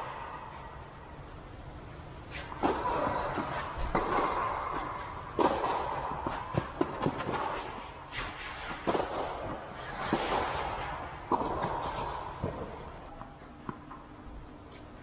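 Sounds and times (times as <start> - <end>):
tennis ball hits echoing: 2.6 - 7.5, 8.8 - 12.8.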